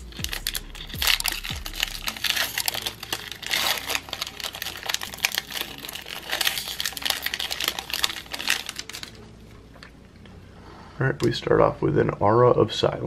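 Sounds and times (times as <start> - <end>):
foil wrapper crinkling and tearing: 0.0 - 9.3.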